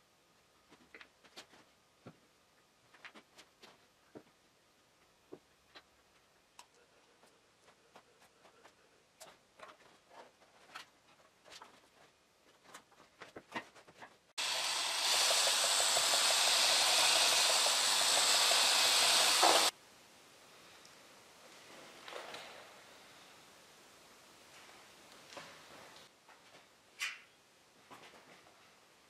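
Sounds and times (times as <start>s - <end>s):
loud steady hiss: 14.4s - 21.4s.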